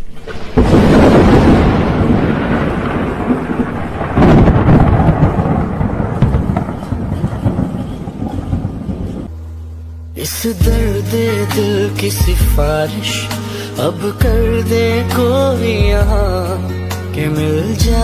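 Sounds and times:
thunder rumbling: 0:00.0 - 0:09.3.

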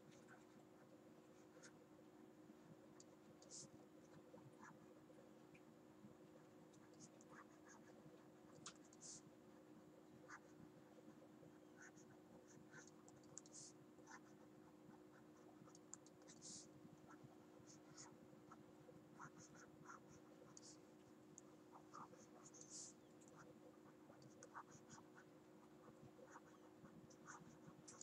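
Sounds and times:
steady low hum: 0:00.0 - 0:28.0
stylus tapping and scratching: 0:05.5 - 0:09.3, 0:10.3 - 0:28.0.

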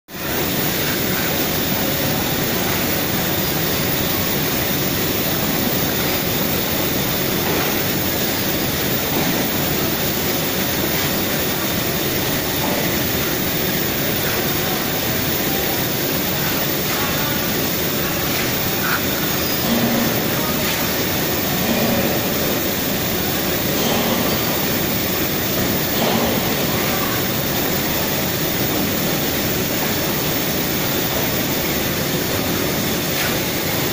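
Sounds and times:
loud machinery roar: 0:00.2 - 0:33.9
faint voices: 0:14.1 - 0:28.3.

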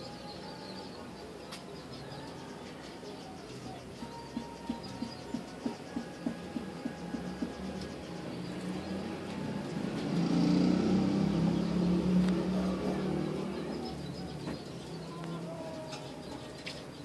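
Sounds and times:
passing vehicle engine hum: 0:05.5 - 0:17.0.

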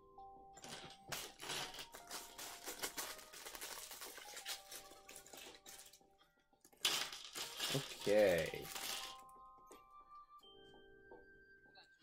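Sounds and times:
plastic bag crinkling: 0:00.6 - 0:06.0, 0:06.8 - 0:09.4.

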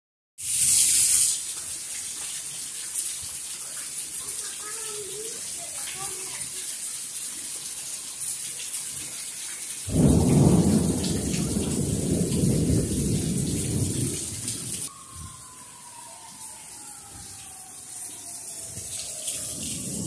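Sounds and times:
heavy rain pouring: 0:00.4 - 0:20.0
thunder rumble: 0:09.9 - 0:17.7, 0:18.6 - 0:20.0
faint falling siren tone: 0:14.8 - 0:20.0.

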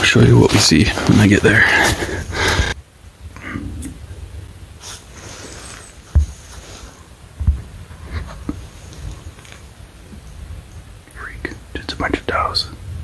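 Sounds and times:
faint hiss: 0:00.0 - 0:13.0
dull low handling thumps: 0:06.1 - 0:06.5, 0:07.3 - 0:08.6.

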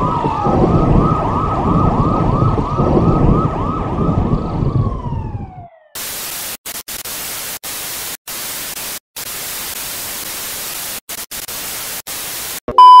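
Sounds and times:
tv static hiss: 0:06.0 - 0:12.8.

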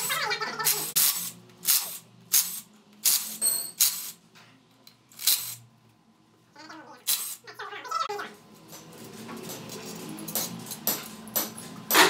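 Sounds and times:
impact wrench bursts: 0:00.0 - 0:04.2, 0:05.1 - 0:05.6, 0:07.1 - 0:07.4.

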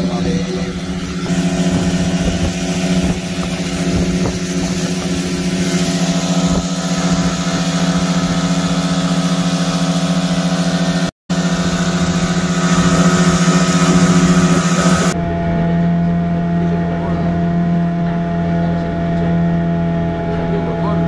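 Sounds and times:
outboard motor running: 0:00.0 - 0:21.0
water rushing past hull: 0:00.0 - 0:21.0.

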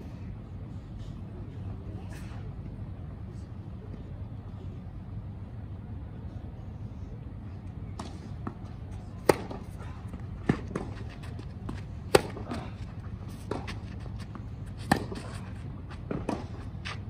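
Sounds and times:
tennis racket hitting ball: 0:09.2 - 0:09.8, 0:10.4 - 0:15.4.

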